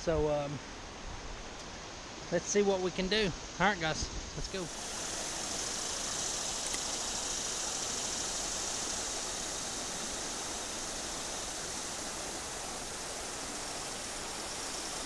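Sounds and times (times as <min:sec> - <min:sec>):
river rushing over riffle: 0:03.5 - 0:15.0.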